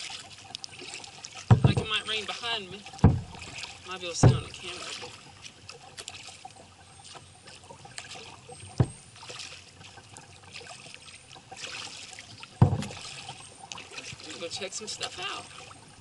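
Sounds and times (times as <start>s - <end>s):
water splashing off paddles: 0.0s - 16.0s
dull knocks: 1.5s - 2.0s, 3.0s - 3.5s, 4.2s - 4.6s, 8.7s - 9.0s, 12.6s - 13.0s.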